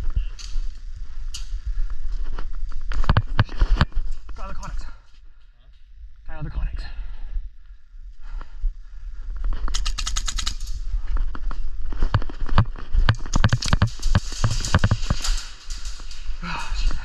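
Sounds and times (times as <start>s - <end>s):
airsoft guns firing: 13.3s - 15.9s.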